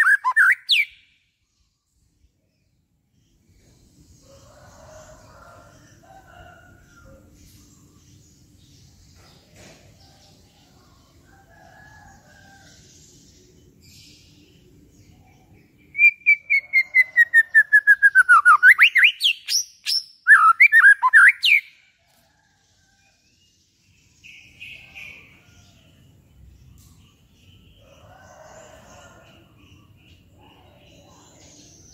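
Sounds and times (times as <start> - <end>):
bird whistling song: 0.0 - 1.1, 15.9 - 21.7.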